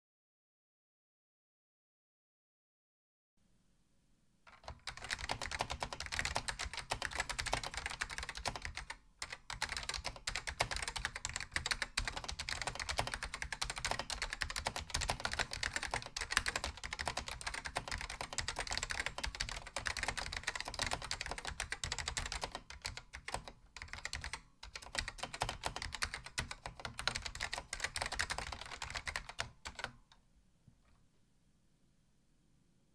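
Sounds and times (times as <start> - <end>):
fast keyboard typing: 4.5 - 30.0.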